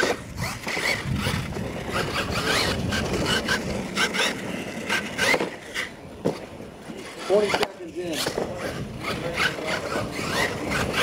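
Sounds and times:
electric motor whining: 0:00.0 - 0:05.9
tyres scrabbling on loose dirt: 0:00.0 - 0:11.0.

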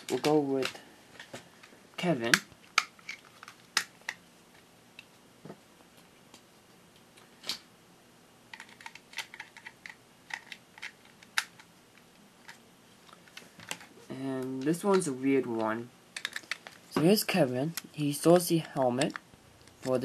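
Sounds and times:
plastic toy parts clicking: 0:00.0 - 0:00.8, 0:08.5 - 0:11.7, 0:14.9 - 0:16.8, 0:17.8 - 0:20.0.

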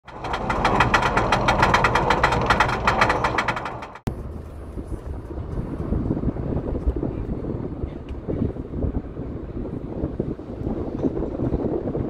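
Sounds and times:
loud rattle of sharp strokes: 0:00.0 - 0:04.1.

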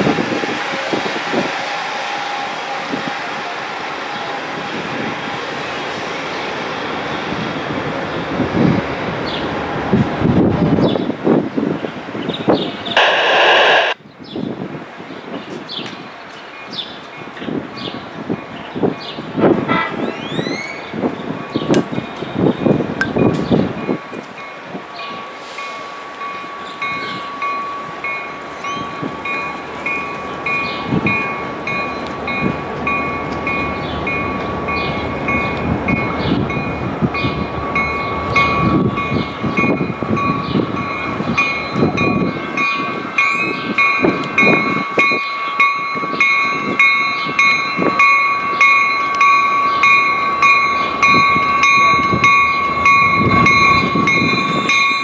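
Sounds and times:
train rumble: 0:00.0 - 0:55.0
railroad crossing bell ringing: 0:21.4 - 0:55.0.

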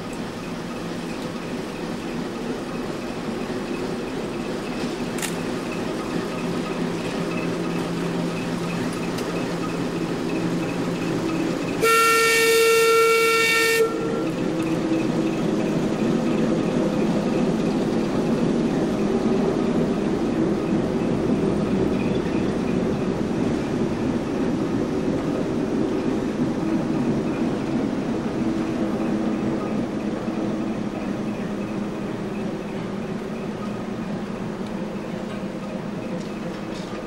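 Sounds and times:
train rumbling past: 0:00.0 - 0:37.0
railway whistle blast: 0:11.8 - 0:14.4.

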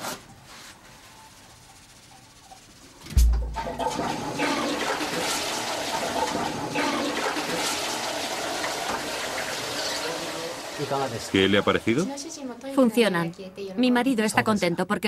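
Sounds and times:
toilet flush thump: 0:03.1 - 0:11.3
water rushing through toilet bowl: 0:03.2 - 0:12.0.

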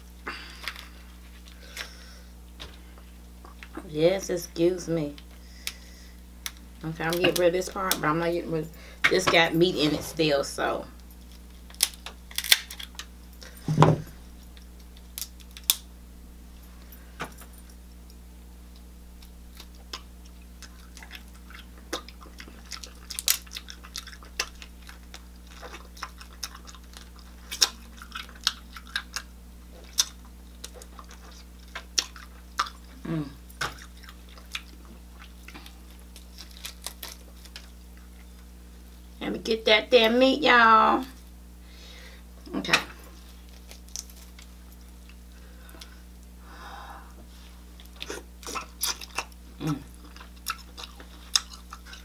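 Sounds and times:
shell cracking and crunching: 0:11.2 - 0:13.1, 0:14.4 - 0:15.9, 0:18.0 - 0:33.0, 0:33.6 - 0:38.4, 0:43.5 - 0:45.2
chewing: 0:18.1 - 0:38.5, 0:47.8 - 0:52.0.

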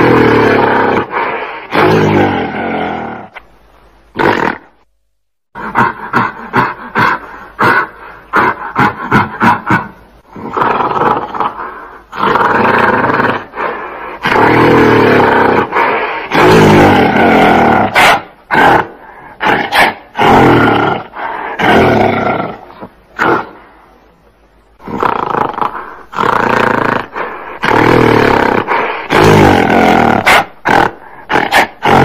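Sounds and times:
gorilla barks: 0:00.0 - 0:03.4, 0:05.6 - 0:23.6, 0:24.8 - 0:32.0
gorilla roars: 0:00.0 - 0:03.4, 0:04.1 - 0:04.8, 0:05.6 - 0:23.6, 0:24.8 - 0:32.0.

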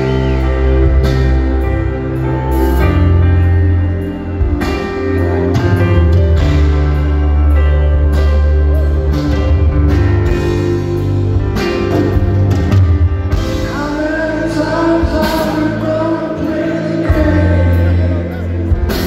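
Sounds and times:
keyboard chords: 0:00.0 - 0:19.0
rock band playing live: 0:00.0 - 0:19.0
man singing with vibrato: 0:13.5 - 0:19.0.

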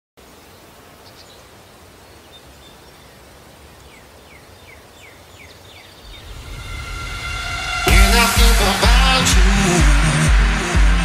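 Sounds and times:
background hiss: 0:00.2 - 0:10.3
bird chirping: 0:00.5 - 0:07.3
low rumble: 0:06.0 - 0:10.0.

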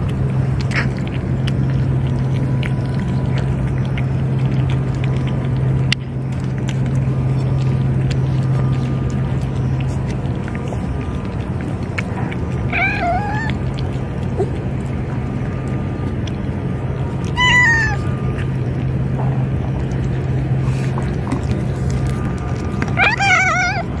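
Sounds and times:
low background hum: 0:00.0 - 0:24.0
cat meowing: 0:12.7 - 0:13.6, 0:17.3 - 0:18.3, 0:22.9 - 0:23.9.

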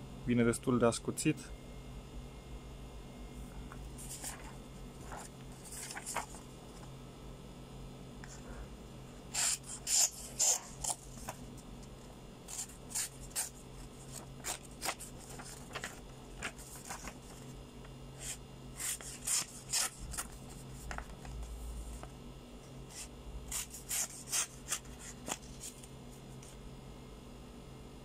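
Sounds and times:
knife slicing paper: 0:09.3 - 0:11.0, 0:12.5 - 0:17.1, 0:18.2 - 0:20.3, 0:22.9 - 0:25.8.

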